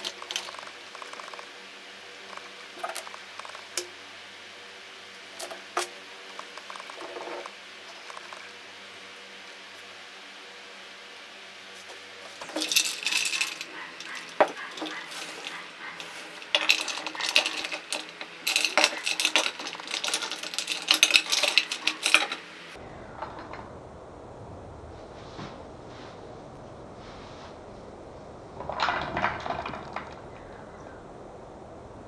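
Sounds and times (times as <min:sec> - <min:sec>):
ice cubes clinking against glass: 0:12.4 - 0:22.4.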